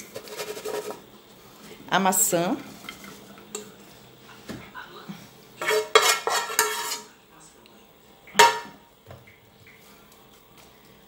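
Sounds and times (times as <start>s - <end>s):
pan and spoon clanking on dish: 5.6s - 7.1s, 8.3s - 8.9s.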